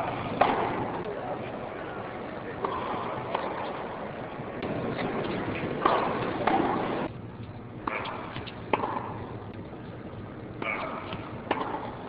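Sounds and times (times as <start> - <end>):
steady background hiss: 0.0 - 12.0
tennis ball struck by rackets: 0.3 - 1.1, 2.6 - 3.9, 4.6 - 7.1, 7.8 - 9.3, 10.6 - 12.0.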